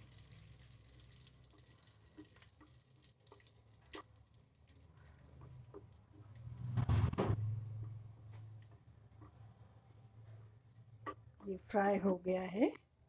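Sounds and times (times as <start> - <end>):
spices sizzling in hot oil: 0.0 - 9.9
small pops and crackles: 0.0 - 11.3
wooden spatula stirring: 0.0 - 11.6.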